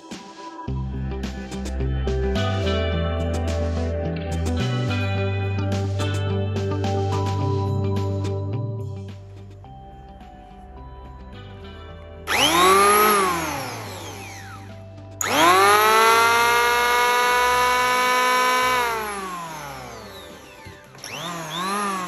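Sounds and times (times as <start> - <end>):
electric hand planer whining: 12.3 - 22.0.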